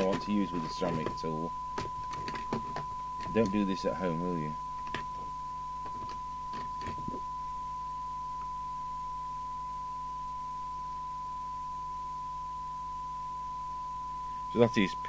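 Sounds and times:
low mains hum: 0:00.0 - 0:15.0
steady test tone from loudspeaker: 0:00.0 - 0:15.0.

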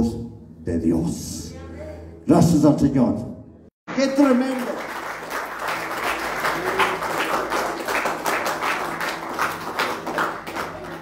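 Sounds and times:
congregation clapping: 0:03.9 - 0:11.0.

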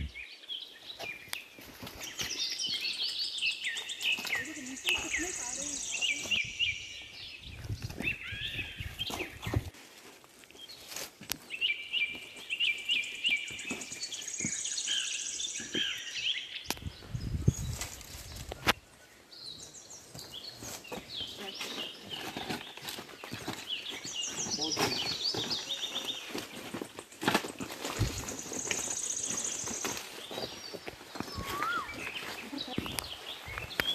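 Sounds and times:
birds chirping: 0:00.0 - 0:09.7, 0:10.6 - 0:33.9
bird high trill: 0:31.3 - 0:32.2.

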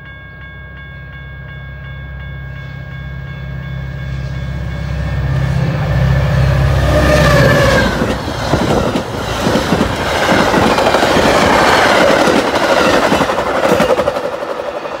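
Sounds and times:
diesel locomotive engine hum: 0:00.0 - 0:15.0
wheels clacking over rail joints: 0:07.0 - 0:15.0.

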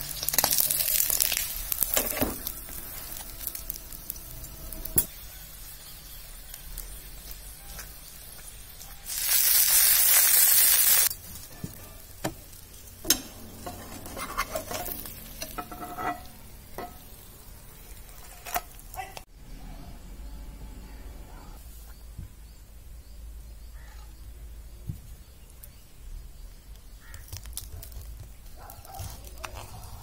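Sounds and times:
pastry sizzling in hot oil: 0:00.0 - 0:19.0
metal tongs scraping a pan: 0:13.0 - 0:17.3, 0:17.9 - 0:18.9.

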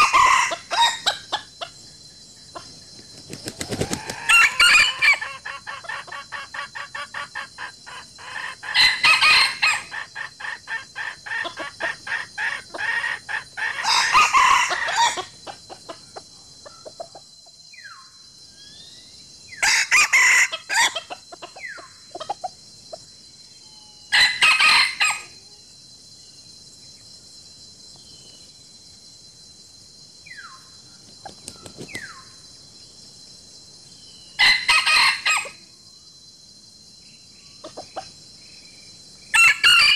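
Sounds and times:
loud chicken calls: 0:00.0 - 0:01.5, 0:03.4 - 0:16.0, 0:19.6 - 0:22.5, 0:24.1 - 0:25.4, 0:34.4 - 0:35.6, 0:39.3 - 0:39.9
chickens clucking: 0:02.6 - 0:17.3, 0:20.7 - 0:23.0.

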